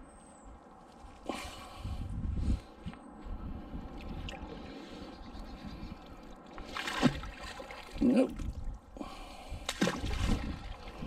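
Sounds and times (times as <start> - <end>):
water splashing and trickling: 5.7 - 11.0.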